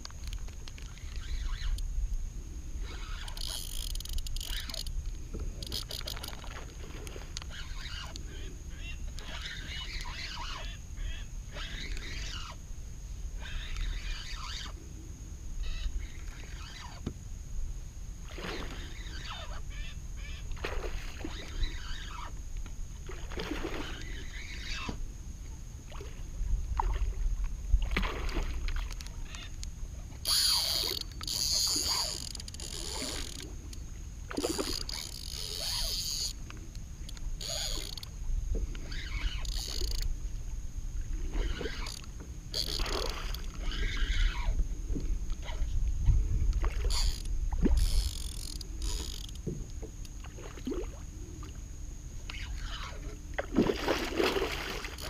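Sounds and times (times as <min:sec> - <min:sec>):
lure splashing on water: 0:27.8 - 0:29.6, 0:41.3 - 0:44.6, 0:52.3 - 0:55.0
wind on microphone: 0:43.2 - 0:48.9.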